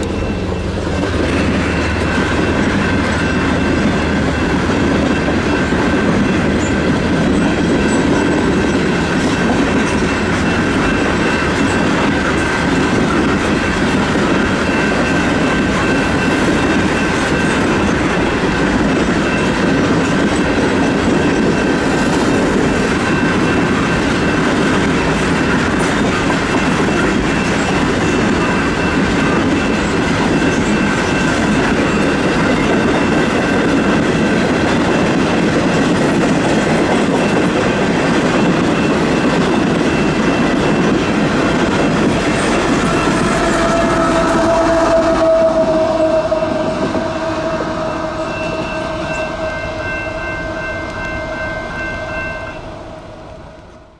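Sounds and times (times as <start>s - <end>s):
train wheels rumbling on rails: 0.0s - 53.9s.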